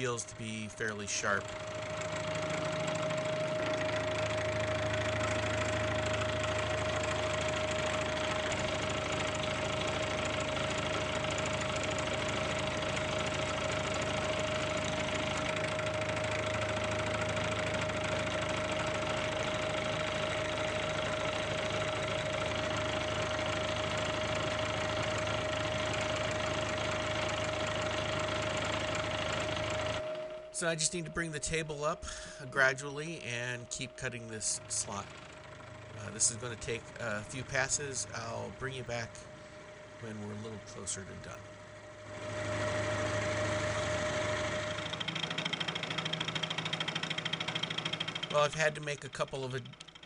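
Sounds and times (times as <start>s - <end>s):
milling machine cutting steel: 0.0s - 50.0s.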